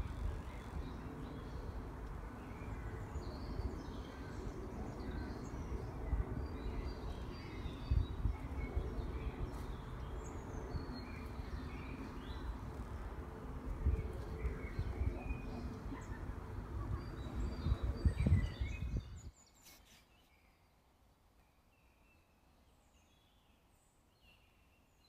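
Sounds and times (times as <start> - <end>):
steady low rumble: 0.0 - 19.3
small birds singing and chirping: 0.0 - 20.8, 21.4 - 25.0.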